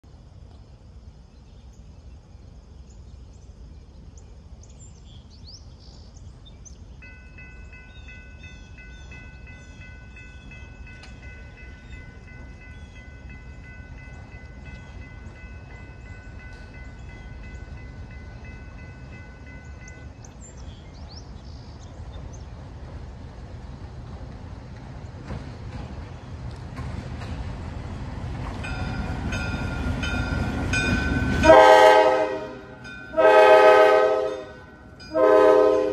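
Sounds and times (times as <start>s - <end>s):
locomotive rumble: 0.3s - 35.9s
bird chirps: 1.3s - 22.7s
locomotive air horn: 31.4s - 35.9s.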